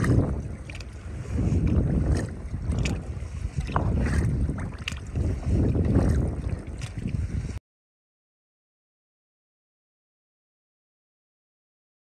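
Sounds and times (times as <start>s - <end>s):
wind buffeting microphone: 0.0s - 7.6s.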